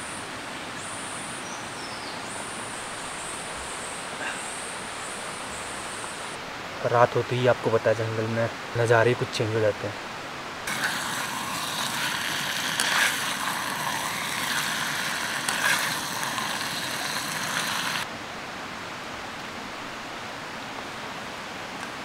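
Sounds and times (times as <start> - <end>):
chicken sizzling in a frying pan: 10.7 - 18.1
gas stove hissing: 10.7 - 18.1.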